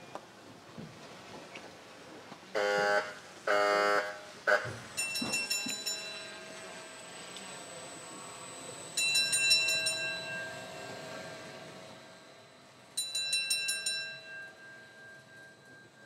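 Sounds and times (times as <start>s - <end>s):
bell ringing in rapid strokes: 5.0s - 16.0s.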